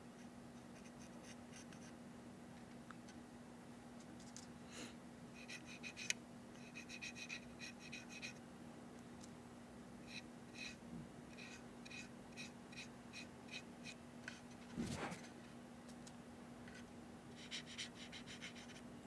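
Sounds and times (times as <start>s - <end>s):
low steady hum: 0.0s - 19.0s
brush scratching strokes: 11.4s - 15.4s.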